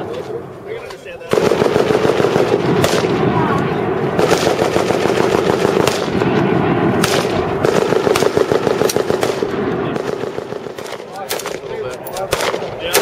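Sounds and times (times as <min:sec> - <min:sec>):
sharp single gunshots: 0:01.3 - 0:03.3, 0:04.2 - 0:11.6
machine-gun fire: 0:01.3 - 0:03.5, 0:04.1 - 0:11.7, 0:12.3 - 0:13.0.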